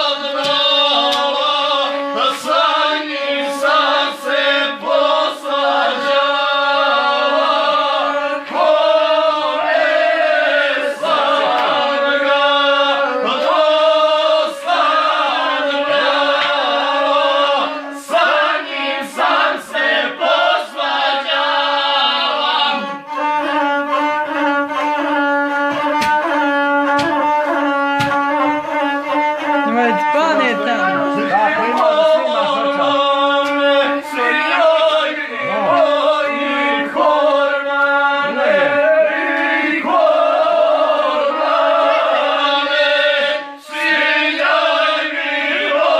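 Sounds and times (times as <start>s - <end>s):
man singing: 0.0s - 7.0s, 29.5s - 39.6s
bowed single-string fiddle: 0.0s - 45.9s.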